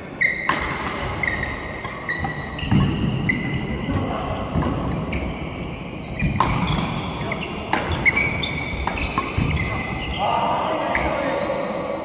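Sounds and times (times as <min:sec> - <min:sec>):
shoes squeaking on court floor: 0:00.0 - 0:11.6
rackets striking shuttlecock: 0:00.4 - 0:05.2, 0:06.1 - 0:09.8.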